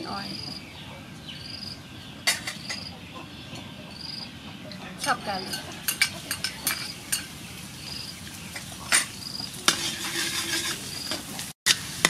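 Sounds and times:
garlic sizzling in oil: 5.2 - 12.0
metal spoon clinking and scraping: 5.4 - 7.3, 8.6 - 11.8.

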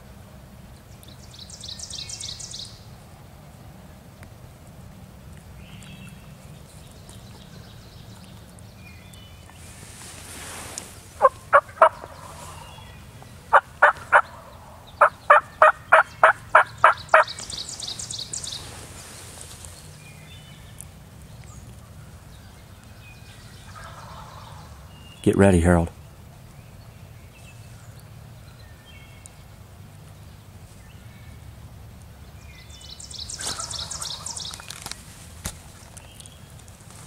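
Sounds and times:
wild turkey calling: 10.3 - 19.8, 21.4 - 25.2, 32.7 - 34.9.

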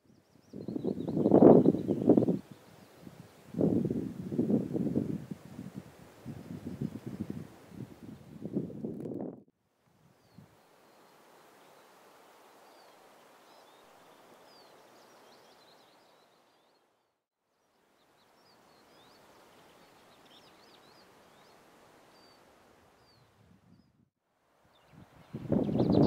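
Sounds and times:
songbirds chirping: 0.0 - 4.4, 10.2 - 24.0
outdoor hiss: 9.8 - 16.8, 17.6 - 23.1.

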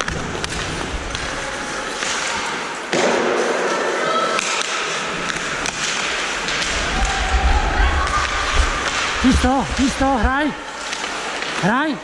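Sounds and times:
hockey sticks clacking: 0.0 - 12.0.

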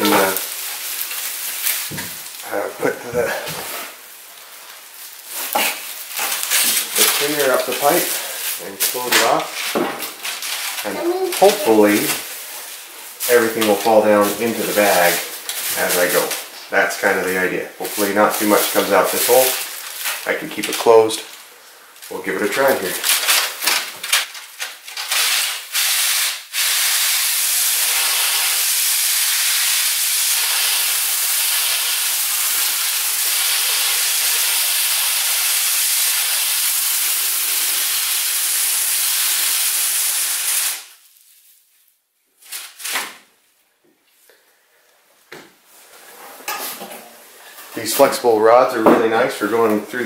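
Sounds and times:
plastic rustling: 0.0 - 26.4, 40.7 - 43.4.

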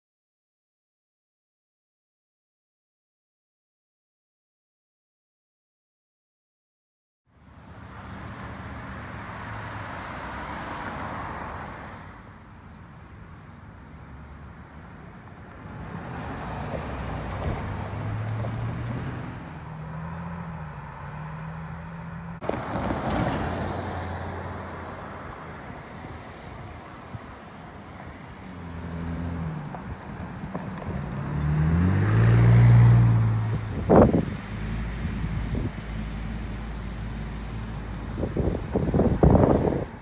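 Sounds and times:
vehicles passing: 7.3 - 40.0
truck crossing rails: 16.7 - 24.8.

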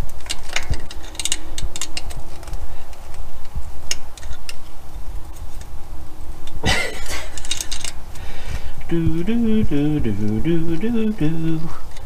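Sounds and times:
low rumble: 8.8 - 11.6.

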